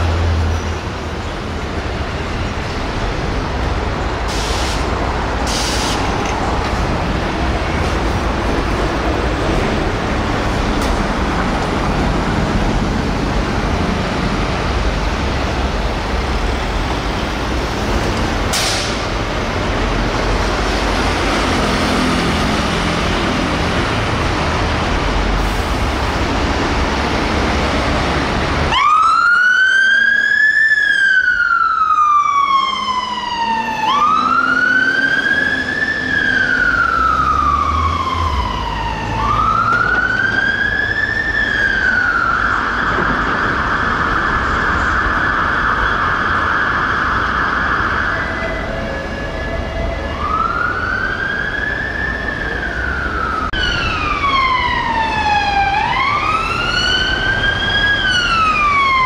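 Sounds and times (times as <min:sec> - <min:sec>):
rushing traffic: 0:00.0 - 0:59.0
fire engine siren wailing: 0:19.6 - 0:59.0
siren sweeping fast: 0:28.7 - 0:59.0.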